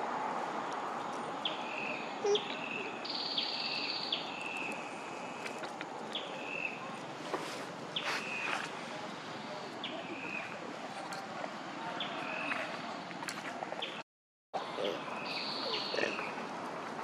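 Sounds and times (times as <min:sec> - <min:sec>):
steady forest hiss: 0:00.0 - 0:11.1, 0:14.6 - 0:16.8.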